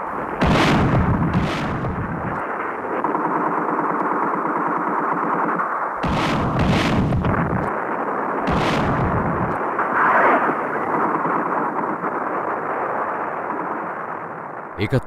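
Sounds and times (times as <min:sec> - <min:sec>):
explosion blasts: 0:00.0 - 0:02.4, 0:06.0 - 0:11.4
gunshots: 0:00.0 - 0:14.0.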